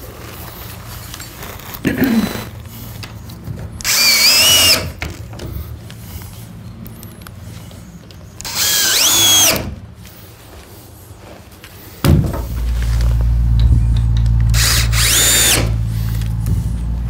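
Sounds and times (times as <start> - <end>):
cordless drill whirring: 3.8 - 5.0, 8.4 - 9.8, 14.2 - 17.0
thump: 12.0 - 12.9
steady low rumble: 12.1 - 17.0.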